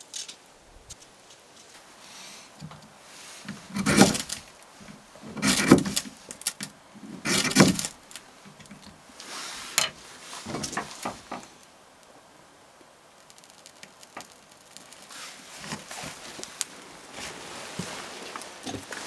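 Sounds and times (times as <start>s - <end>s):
knife scraping wood: 3.4s - 4.4s, 5.3s - 6.2s, 7.2s - 8.2s.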